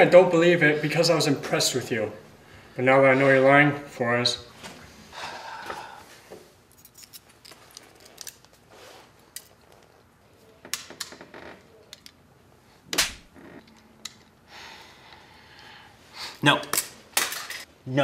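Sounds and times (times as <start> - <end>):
plastic glasses clicking and rustling: 6.7 - 12.2, 12.9 - 14.4, 16.7 - 17.7.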